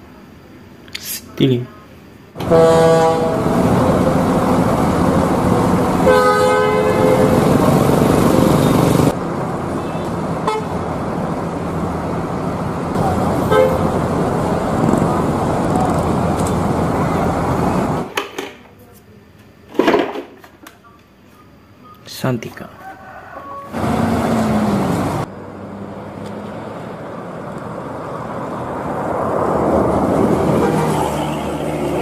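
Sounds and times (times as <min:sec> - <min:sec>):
bus engines idling and moving: 0:00.0 - 0:19.6, 0:20.7 - 0:32.0
bus horns: 0:02.4 - 0:11.2, 0:12.7 - 0:18.1, 0:30.2 - 0:32.0.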